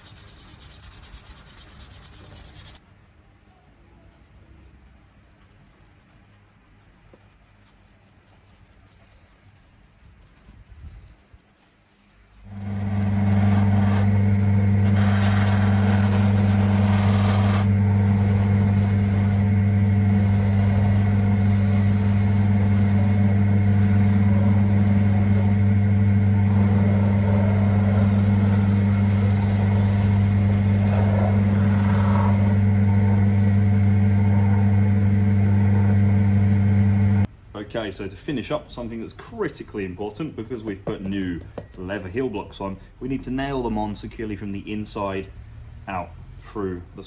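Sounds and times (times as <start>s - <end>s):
electric motor hum: 12.5s - 37.3s.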